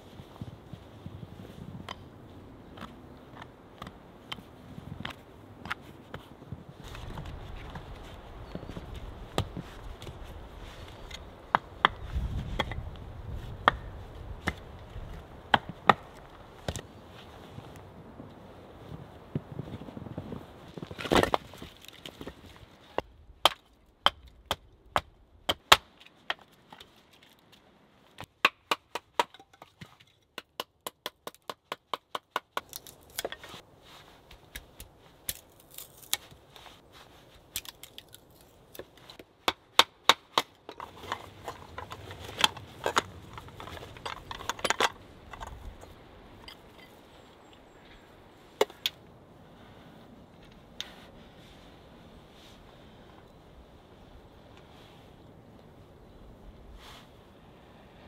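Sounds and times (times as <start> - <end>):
logs knocking together: 37.6 - 45.9.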